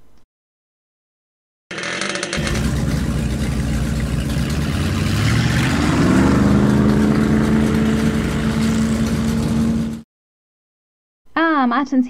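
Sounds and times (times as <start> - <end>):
car engine accelerating: 2.4 - 10.0.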